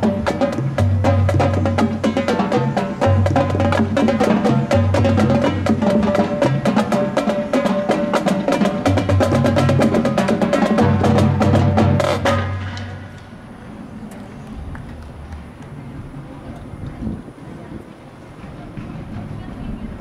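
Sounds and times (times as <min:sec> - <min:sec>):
pitched bass drums: 0:00.0 - 0:13.0
snare and tenor drum strokes: 0:00.0 - 0:13.4.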